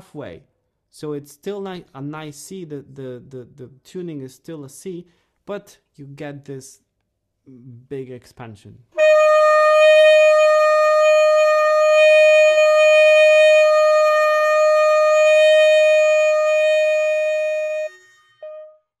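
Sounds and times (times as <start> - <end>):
saxophone holding long note: 9.0 - 18.7.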